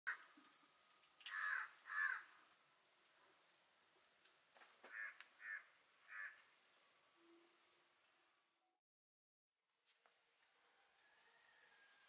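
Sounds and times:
crow cawing: 0.1 - 0.3, 1.3 - 2.5, 4.8 - 6.5.

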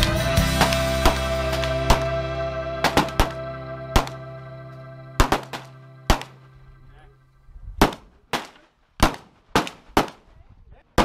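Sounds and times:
background music: 0.0 - 7.8
handgun shots: 0.6 - 2.1, 2.8 - 3.4, 4.0 - 4.2, 5.2 - 6.3, 7.8 - 10.3.

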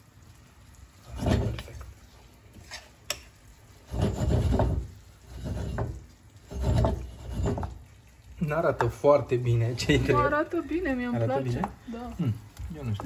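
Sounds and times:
spatula scraping meat in pan: 1.0 - 1.9, 2.5 - 8.1, 8.8 - 11.7.

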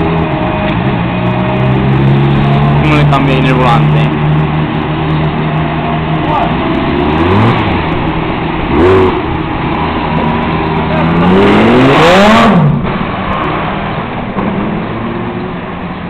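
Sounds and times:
car engine idling: 0.0 - 11.7
sports car engine revving: 0.0 - 15.9.

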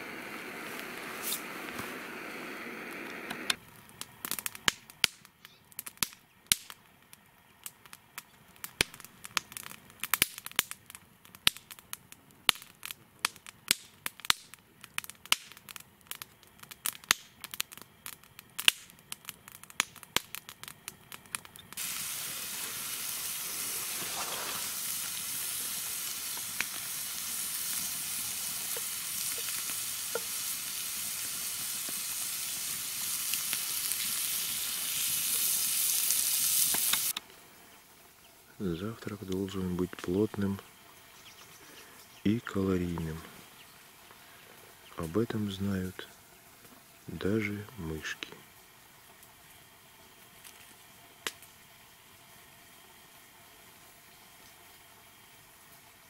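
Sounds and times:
food frying in hot oil: 7.6 - 37.2.

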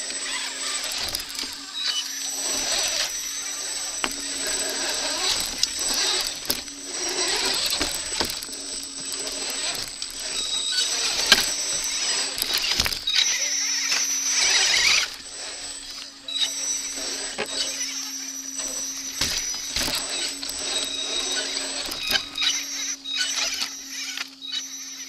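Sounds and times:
electric motor whine: 0.0 - 25.0.

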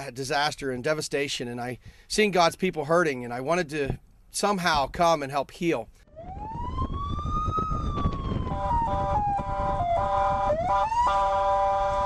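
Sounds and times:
warning siren wailing: 6.1 - 12.0.

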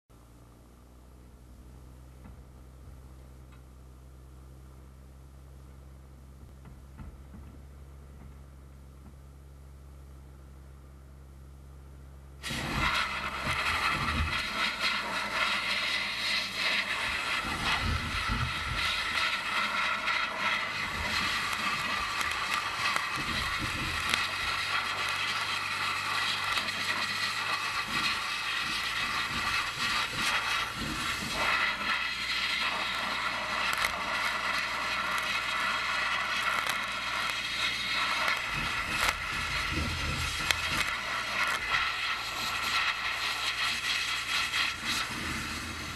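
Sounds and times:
compressor engine humming: 11.9 - 45.9
blasting nozzle hissing: 12.4 - 45.9.

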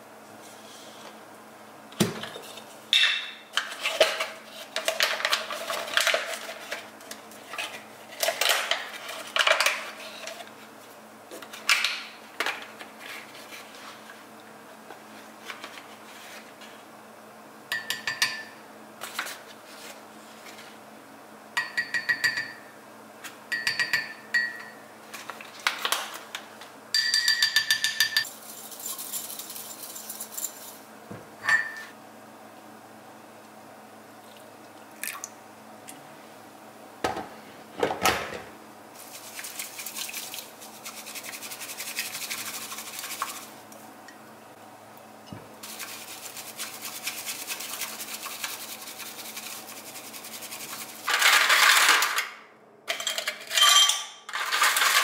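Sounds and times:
bamboo whisk strokes in bowl: 39.0 - 43.6, 45.6 - 51.1.

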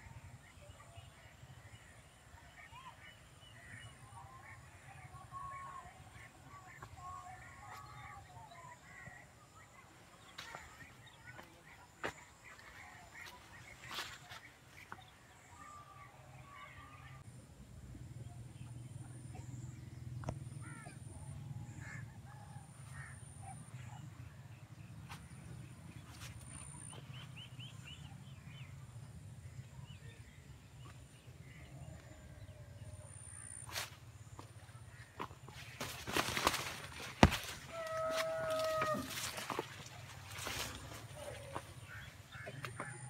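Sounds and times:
birds calling: 29.4 - 43.0.

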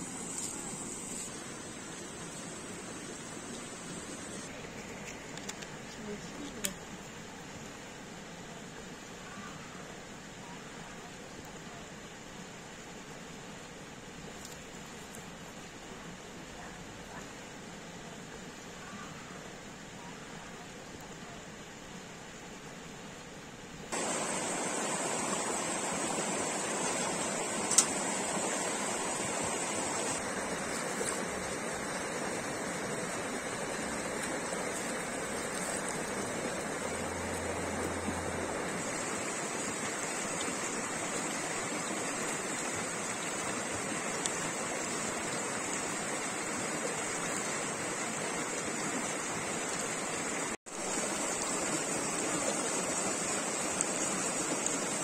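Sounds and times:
stream rushing over stones: 0.0 - 10.4, 23.9 - 55.0.

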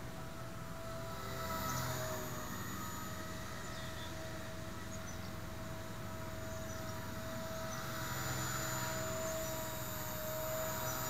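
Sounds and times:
rc helicopter whine: 0.0 - 11.0.

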